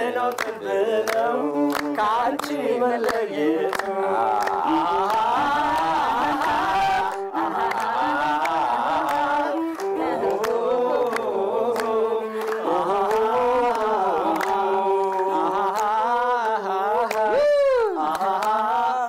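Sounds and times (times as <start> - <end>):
group singing: 0.0 - 19.0
rhythmic handclaps: 0.0 - 19.0.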